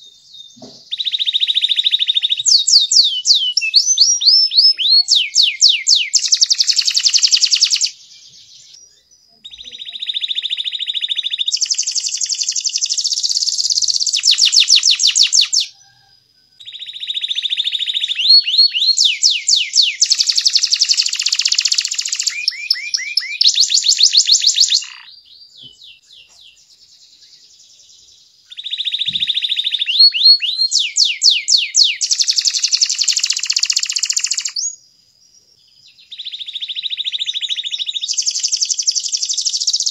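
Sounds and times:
canary singing: 0.0 - 27.5, 28.5 - 34.8, 36.0 - 39.9.

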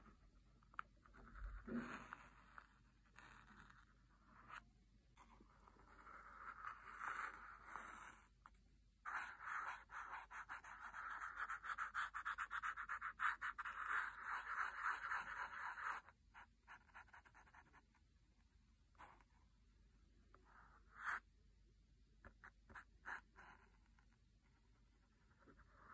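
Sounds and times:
marker scratching on phone case: 9.1 - 17.9.

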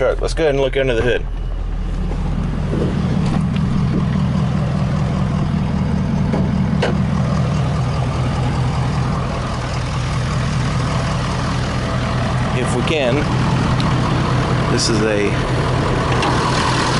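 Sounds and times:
pickup truck engine idling: 0.0 - 16.9.

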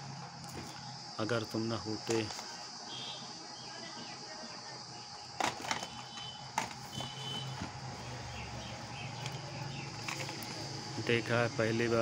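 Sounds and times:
high background hiss: 0.0 - 12.0
plastic cassette cases clacking: 5.4 - 7.2.

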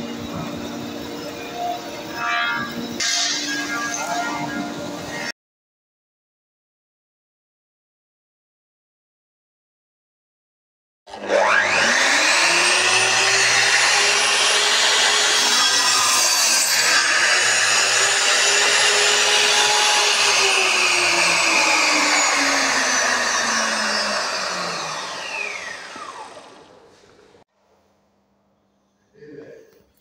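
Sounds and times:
miter saw cutting wood: 11.1 - 26.9.

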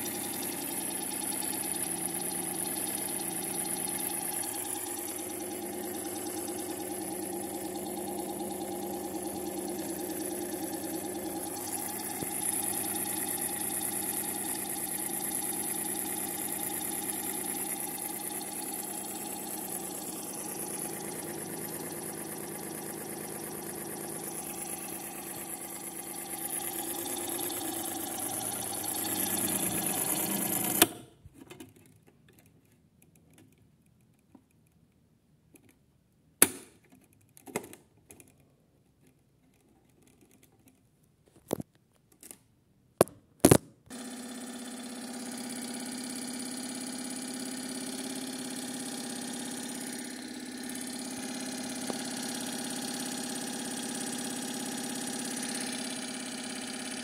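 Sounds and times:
toy washing machine motor humming: 0.0 - 30.9, 43.9 - 57.0.

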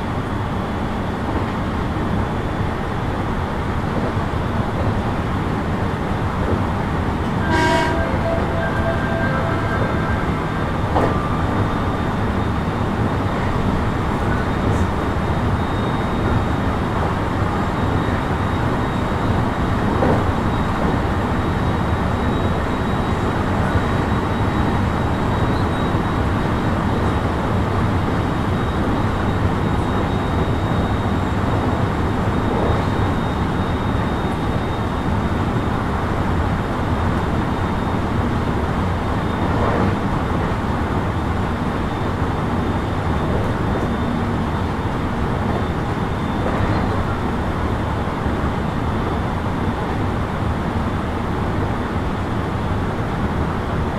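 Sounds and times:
train wheel and rail rumble: 0.0 - 53.9
faint high tone: 7.4 - 12.1
ringing tones: 7.4 - 12.6.

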